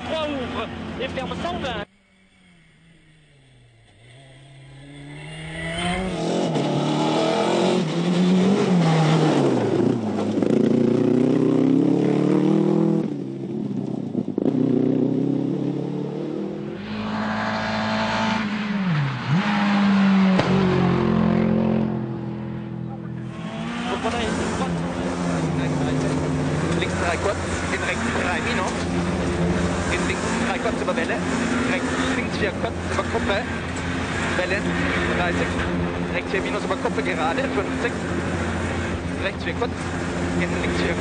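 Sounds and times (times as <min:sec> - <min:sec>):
rally car engines revving: 0:00.0 - 0:41.0.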